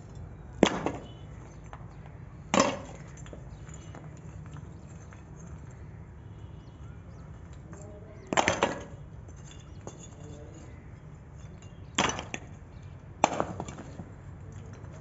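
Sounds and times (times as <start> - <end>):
broken bricks clattering: 0.6 - 1.9, 2.5 - 5.2, 8.3 - 10.3, 11.9 - 12.6, 13.2 - 14.0.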